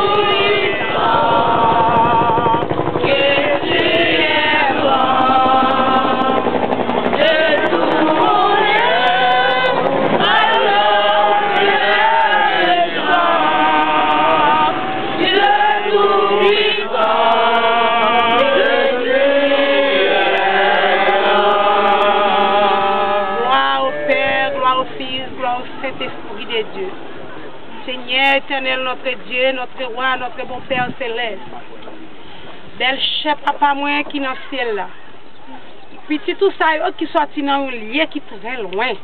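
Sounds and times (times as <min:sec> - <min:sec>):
group singing unaccompanied: 0:00.0 - 0:26.8.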